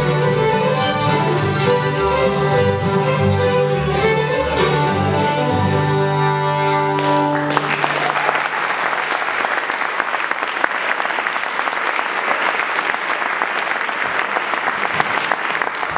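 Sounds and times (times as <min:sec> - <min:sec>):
fiddle band final chord: 0:00.0 - 0:07.6
audience applauding: 0:07.0 - 0:15.9.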